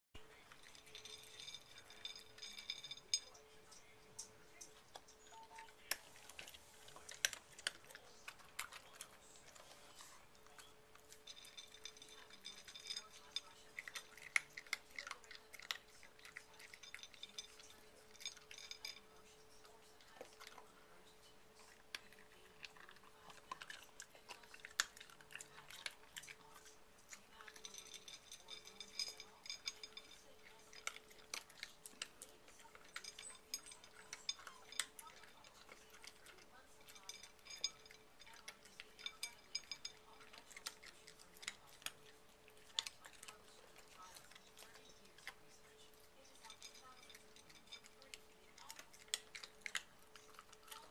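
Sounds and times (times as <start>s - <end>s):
dog crunching dry kibble: 0.3s - 50.9s
kibble clicking against plate: 21.8s - 50.9s.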